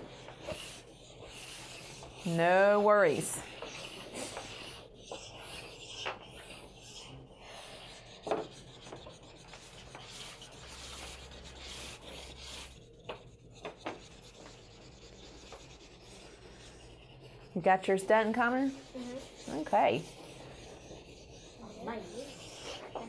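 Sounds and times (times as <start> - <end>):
pastel rubbing on paper: 0.0 - 23.0
pastel tapping on paper: 8.2 - 9.2, 13.0 - 14.6.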